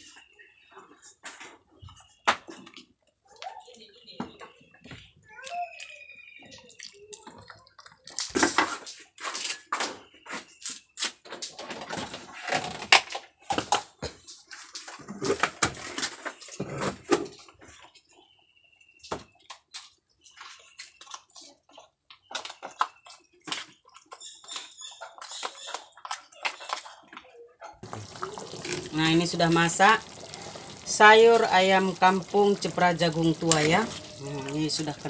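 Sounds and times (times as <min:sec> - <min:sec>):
water splashing: 0:27.8 - 0:35.0.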